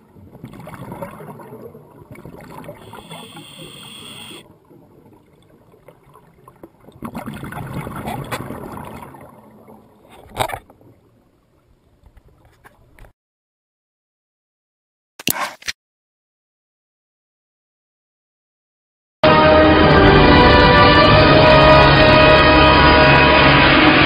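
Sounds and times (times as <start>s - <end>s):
water rushing and gurgling: 0.0s - 11.8s
faint high whine: 2.6s - 4.4s.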